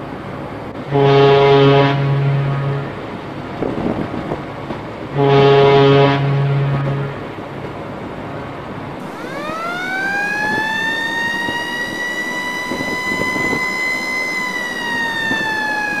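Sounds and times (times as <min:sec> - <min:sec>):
steady background noise: 0:00.0 - 0:16.0
siren winding up: 0:09.0 - 0:16.0.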